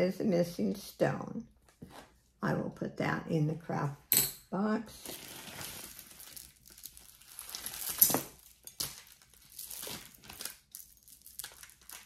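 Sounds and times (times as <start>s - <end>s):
plastic bag crinkling: 5.0s - 12.0s.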